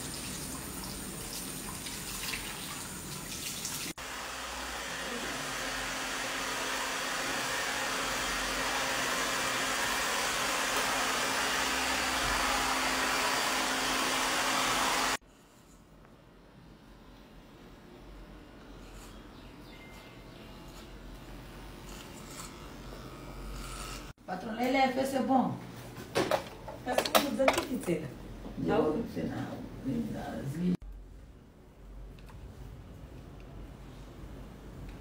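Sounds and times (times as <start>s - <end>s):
hair dryer blowing: 3.9s - 15.2s.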